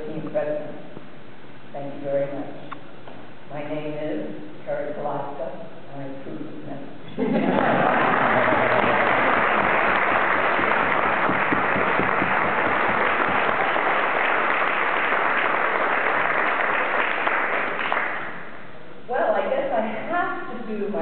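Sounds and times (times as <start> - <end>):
audience applauding: 7.6 - 18.5.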